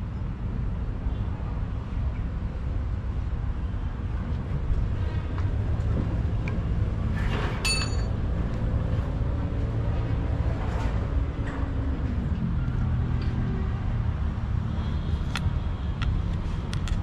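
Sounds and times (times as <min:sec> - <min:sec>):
vehicle engine rumbling: 0:01.1 - 0:17.0
sharp metal clink: 0:07.6 - 0:08.1.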